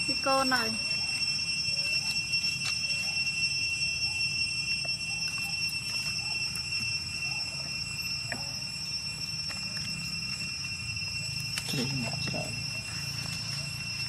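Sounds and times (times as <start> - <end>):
insects shrilling: 0.0 - 14.0.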